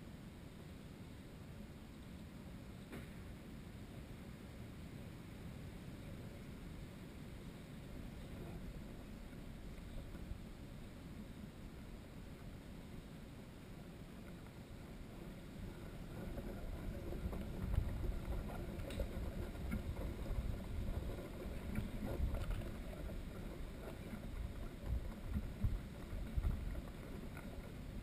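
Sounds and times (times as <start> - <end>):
faint ticks: 13.6 - 28.0
wind buffeting microphone: 13.8 - 28.0.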